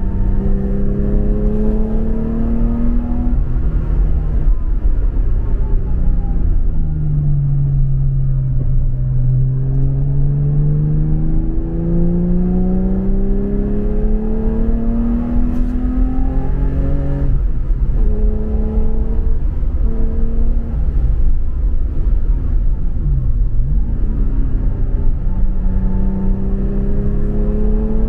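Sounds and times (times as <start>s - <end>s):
car engine accelerating: 0.0s - 28.0s
road and wind rumble: 0.0s - 28.0s.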